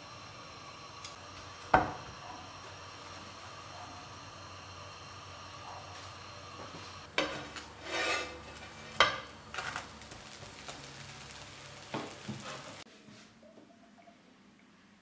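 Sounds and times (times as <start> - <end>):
bread sizzling in pan: 0.0 - 12.9
scraping in pan: 7.2 - 12.8.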